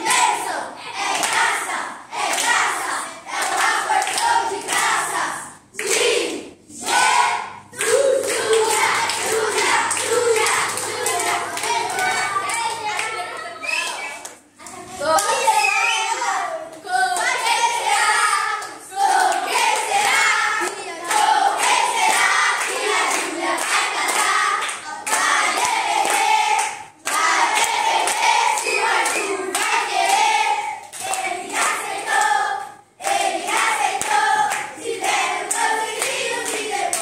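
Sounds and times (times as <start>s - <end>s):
children singing: 0.0s - 14.2s, 15.2s - 37.0s
rhythmic hand clapping: 0.0s - 15.5s, 16.6s - 37.0s.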